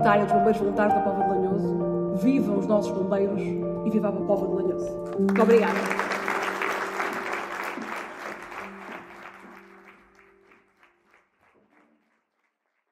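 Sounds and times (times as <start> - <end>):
audience applauding: 5.2 - 12.5.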